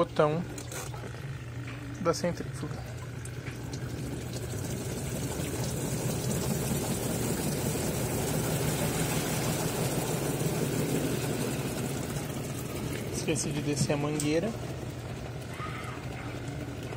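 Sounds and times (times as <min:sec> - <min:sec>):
spin-dryer motor humming: 0:00.0 - 0:16.9
rush of water from towels: 0:03.9 - 0:13.4.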